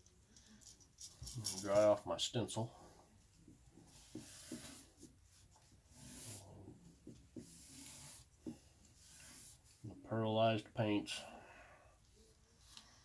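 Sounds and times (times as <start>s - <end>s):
stencil rubbing on paper towel: 3.9s - 9.8s.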